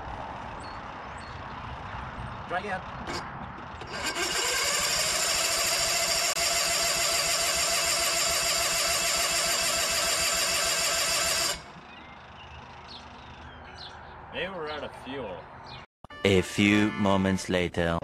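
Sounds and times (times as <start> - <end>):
starter motor cranking: 3.1 - 11.7.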